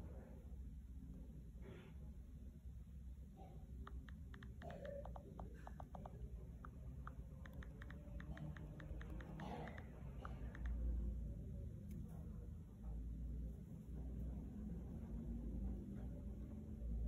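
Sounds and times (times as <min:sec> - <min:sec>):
phone keyboard clicks: 0:03.8 - 0:10.8.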